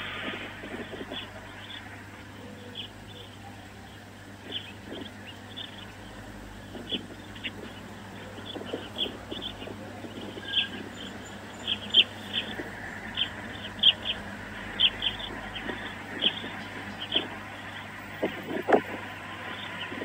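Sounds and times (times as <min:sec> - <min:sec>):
background hiss: 0:00.0 - 0:03.4
songbird chirping: 0:00.0 - 0:20.0.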